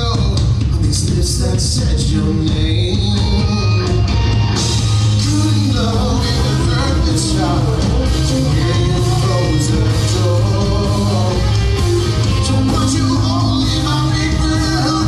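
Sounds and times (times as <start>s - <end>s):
bass guitar: 0.0s - 15.0s
drums: 0.0s - 15.0s
electric guitars: 0.0s - 15.0s.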